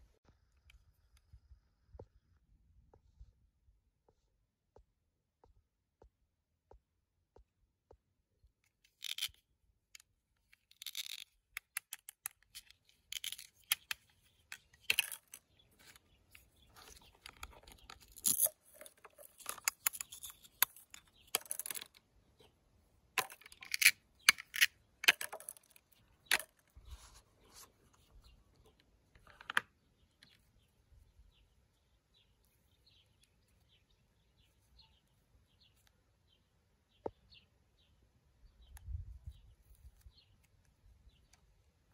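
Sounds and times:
plastic toy pieces clicking: 8.9s - 9.4s, 10.5s - 16.0s, 17.2s - 22.0s, 23.2s - 26.6s.

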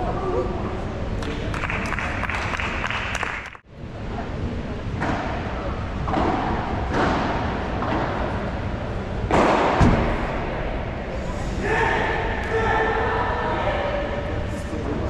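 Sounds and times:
crowd hubbub in a hall: 0.0s - 2.9s, 3.6s - 15.0s.

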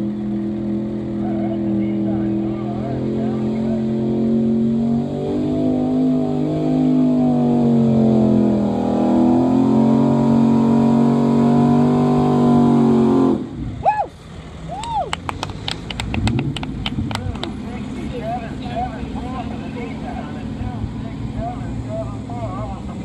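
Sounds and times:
truck engine at high revs: 0.0s - 23.0s.

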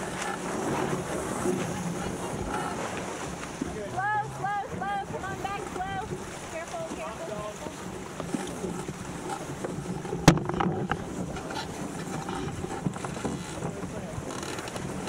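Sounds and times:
water rushing past hull: 0.0s - 15.0s.

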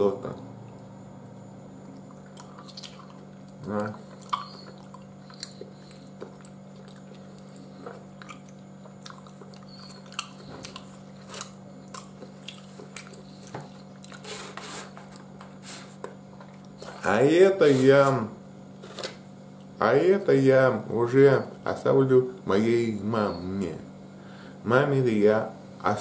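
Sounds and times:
person chewing: 1.8s - 17.0s.

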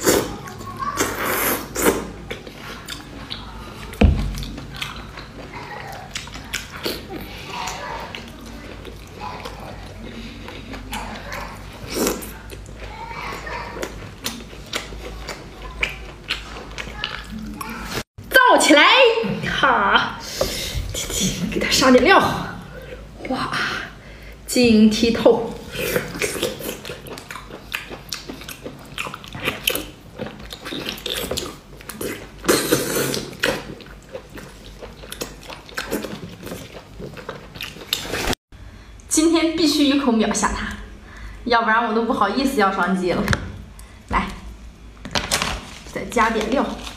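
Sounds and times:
wet chewing and lip smacks: 1.8s - 13.0s, 13.8s - 17.8s, 26.0s - 38.4s.

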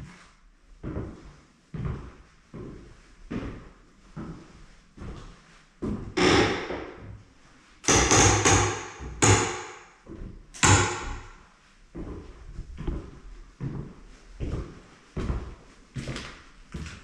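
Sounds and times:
sharp ringing bangs: 10.6s - 11.3s.

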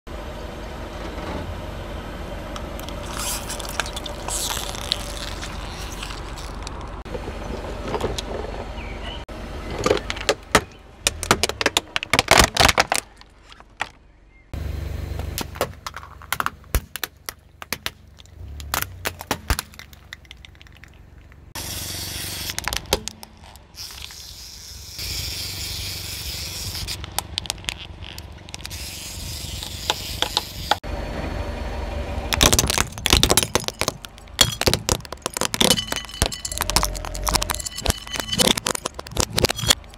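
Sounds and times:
car rumble: 0.1s - 39.9s
tyre crushing brittle plastic: 2.8s - 7.0s, 9.8s - 14.0s, 15.4s - 24.4s, 26.3s - 30.8s, 32.3s - 39.9s.

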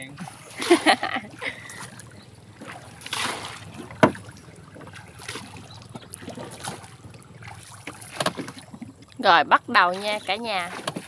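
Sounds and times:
pole swishing and splashing in water: 0.0s - 11.0s
sharp knock on boat: 2.6s - 6.8s, 7.8s - 8.8s.

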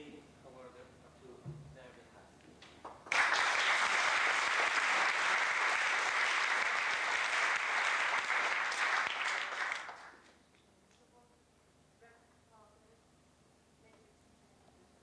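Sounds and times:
crowd applause: 3.1s - 10.3s.

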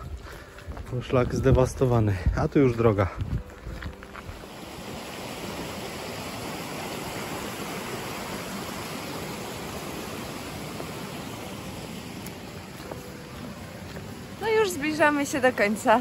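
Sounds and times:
stream rushing over waterfalls: 3.6s - 16.0s.

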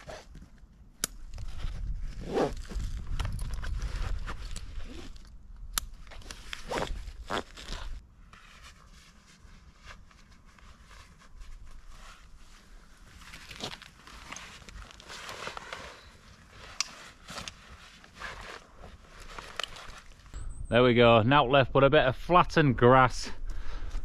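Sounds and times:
backpack rustling: 1.2s - 20.4s
zipper pulls: 1.4s - 5.3s, 6.0s - 8.0s.

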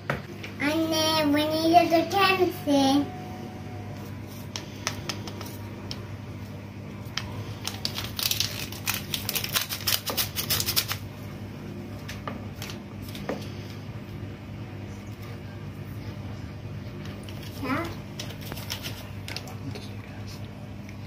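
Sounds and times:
paper sachet crinkling and tapping: 7.1s - 11.0s, 18.2s - 19.5s.

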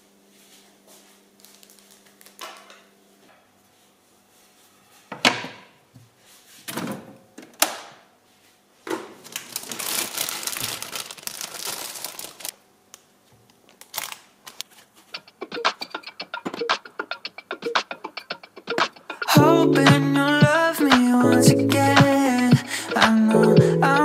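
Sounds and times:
bag crinkling: 9.2s - 12.6s, 13.7s - 15.2s
music with a quick beat: 15.4s - 24.0s.

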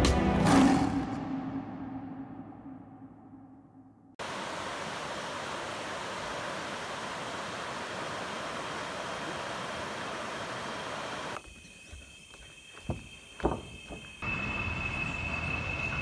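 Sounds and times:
river water rushing over rapids: 4.2s - 11.4s.

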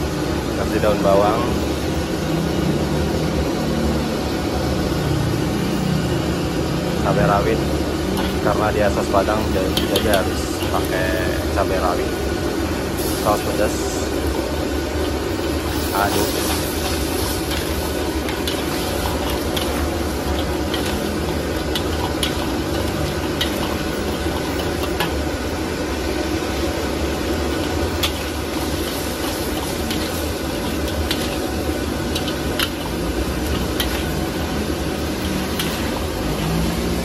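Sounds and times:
sauce bubbling and sizzling: 1.3s - 37.0s
metal spatula scraping wok: 14.2s - 25.8s, 26.4s - 37.0s.

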